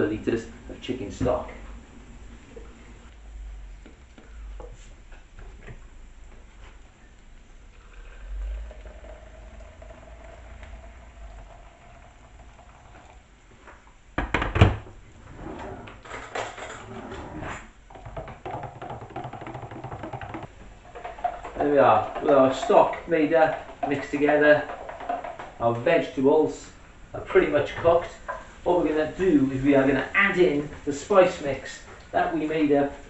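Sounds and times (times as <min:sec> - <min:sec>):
water pouring into a jug: 0:07.7 - 0:13.3
spoon rattling against a jug: 0:17.9 - 0:25.6.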